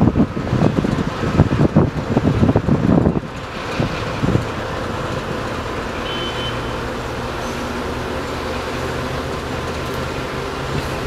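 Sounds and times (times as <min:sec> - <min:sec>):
wind gust on microphone: 0:00.0 - 0:05.3
diesel locomotive engine drone: 0:00.0 - 0:11.0.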